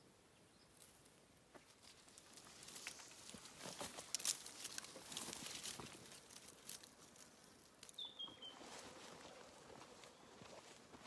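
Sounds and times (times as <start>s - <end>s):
bird chirp: 0.0s - 0.8s, 7.8s - 10.6s
dry scratching and rustling clicks: 0.7s - 8.0s.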